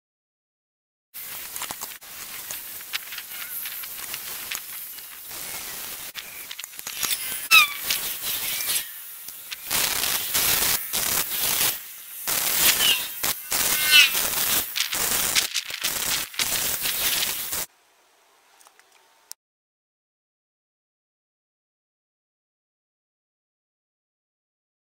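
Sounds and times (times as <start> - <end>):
welder arc crackling: 1.2 - 17.7.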